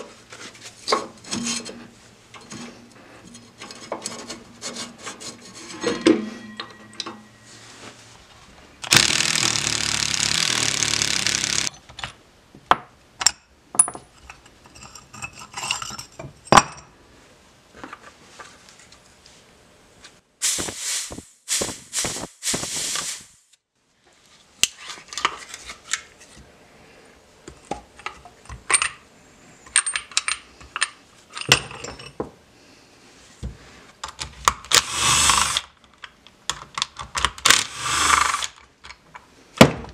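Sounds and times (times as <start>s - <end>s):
short loud bursts: 8.8s - 11.7s.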